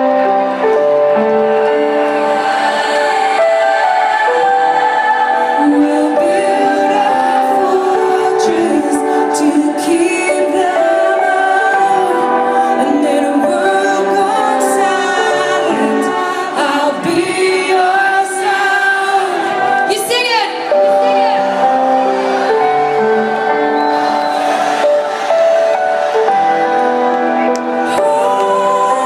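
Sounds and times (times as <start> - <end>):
woman singing: 2.8 - 21.6, 27.8 - 29.0.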